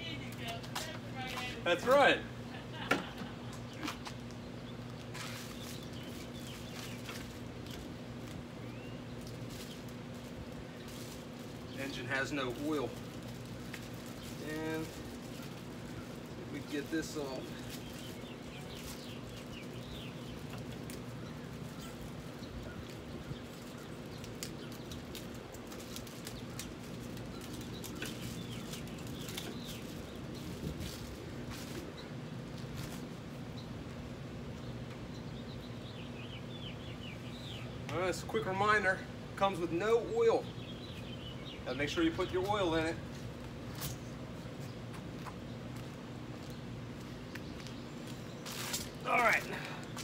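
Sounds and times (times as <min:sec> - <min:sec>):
steady low hum: 0:00.0 - 0:50.0
packing material crinkling: 0:04.2 - 0:08.4, 0:09.1 - 0:31.9.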